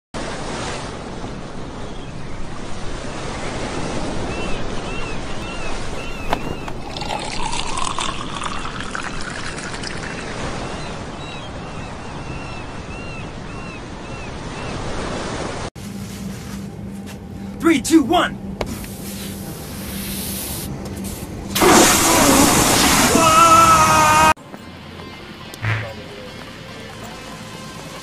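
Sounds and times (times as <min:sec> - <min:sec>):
ocean surf: 0:00.2 - 0:16.3
wind: 0:00.2 - 0:28.0
liquid pouring and gurgling: 0:05.9 - 0:11.0, 0:21.6 - 0:23.3.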